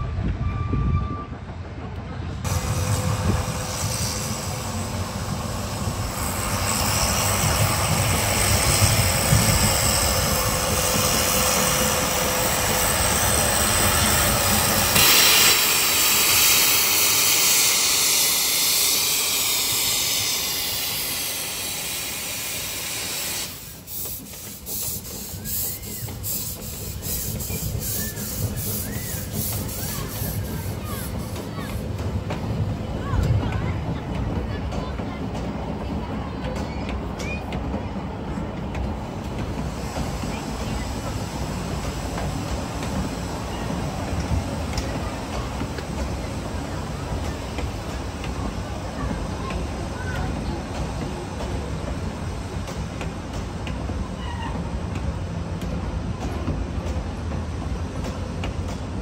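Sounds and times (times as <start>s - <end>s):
train wheels rumbling: 0.0s - 59.0s
steam hissing: 2.4s - 32.7s, 39.0s - 59.0s.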